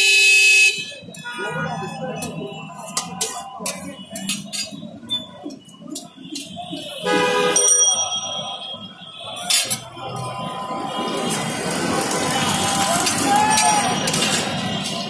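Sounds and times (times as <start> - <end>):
ringing tone: 7.5 - 9.3.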